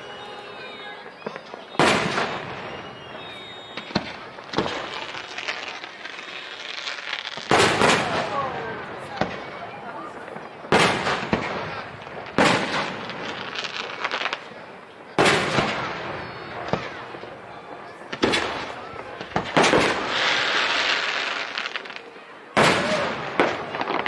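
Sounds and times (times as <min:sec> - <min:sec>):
fireworks booming: 0:00.0 - 0:24.0
fireworks crackling: 0:00.0 - 0:24.0.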